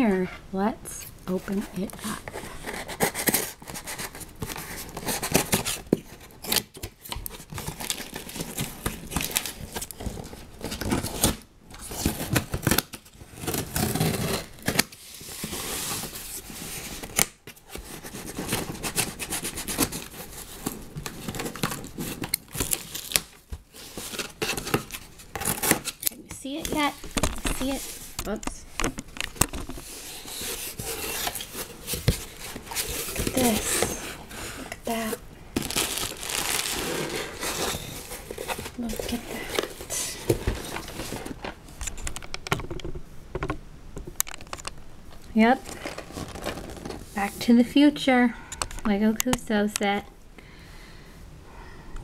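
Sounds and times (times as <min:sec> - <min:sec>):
cardboard rustling: 0:01.3 - 0:43.0, 0:45.6 - 0:47.5
tape tearing: 0:02.0 - 0:28.6, 0:29.2 - 0:42.0, 0:45.6 - 0:47.1.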